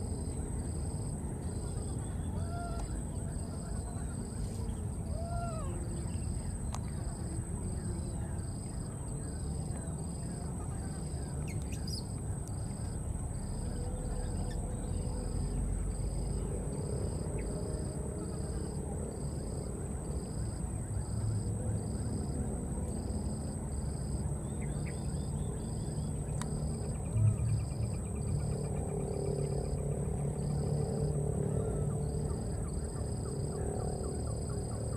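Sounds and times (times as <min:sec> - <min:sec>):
insects chirping: 0:00.0 - 0:34.9
low rumbling background: 0:00.0 - 0:34.9.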